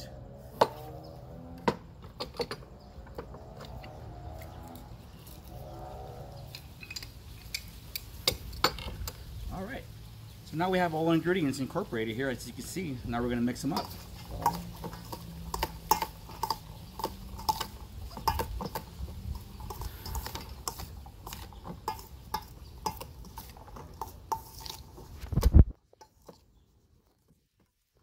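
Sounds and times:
metal spoon clinking in bowl: 0:13.5 - 0:24.8.

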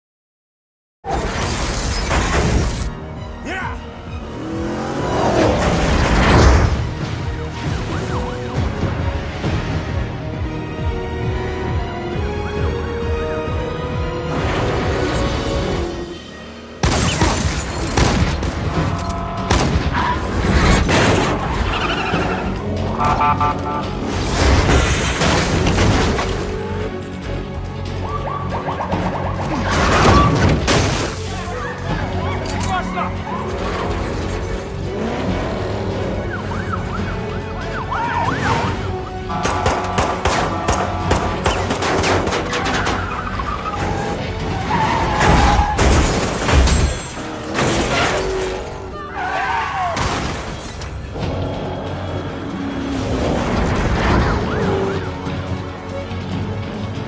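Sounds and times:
car engines: 0:01.1 - 0:57.0
tense score music: 0:01.1 - 0:57.0
police siren: 0:23.0 - 0:23.8.

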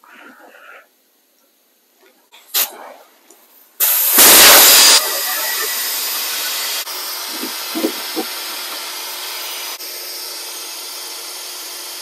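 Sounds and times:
compressed air hissing: 0:03.8 - 0:12.0.

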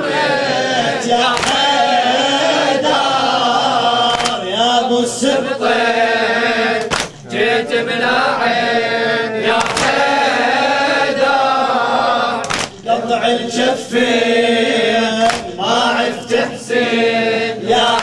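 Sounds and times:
men chanting in unison: 0:00.0 - 0:18.0
chest-beating slaps: 0:01.3 - 0:01.7, 0:04.1 - 0:04.4, 0:06.8 - 0:07.3, 0:09.6 - 0:10.0, 0:12.4 - 0:12.8, 0:15.2 - 0:15.6.

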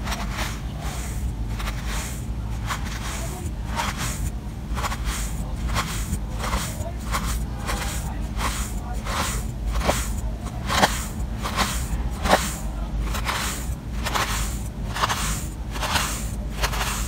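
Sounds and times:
knife crunching through sand: 0:00.0 - 0:17.0.

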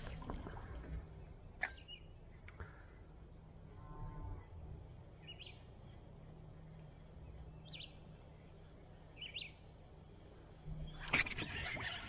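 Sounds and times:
low background rumble: 0:00.0 - 0:12.0
small bird chirping: 0:07.1 - 0:09.6.

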